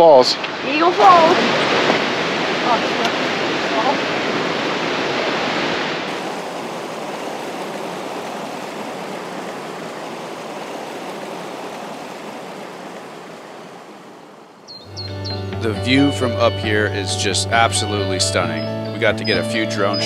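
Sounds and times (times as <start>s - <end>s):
creek water rushing over boulders: 0.0s - 14.7s.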